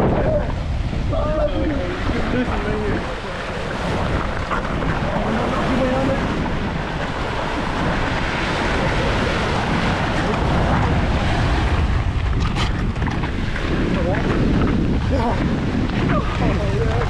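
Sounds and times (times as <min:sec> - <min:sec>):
surf washing against jetty: 0:00.0 - 0:17.0
wind buffeting microphone: 0:00.0 - 0:17.0.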